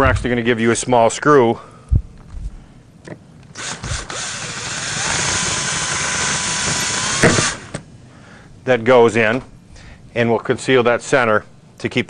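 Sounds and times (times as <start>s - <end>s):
power drill driving screw: 3.5s - 7.8s.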